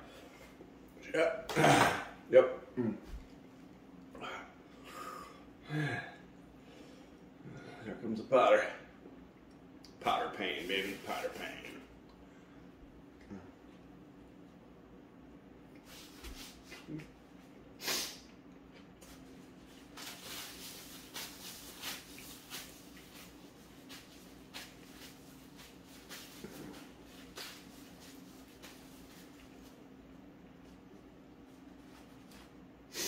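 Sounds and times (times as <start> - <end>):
man chewing food: 18.3 - 19.6.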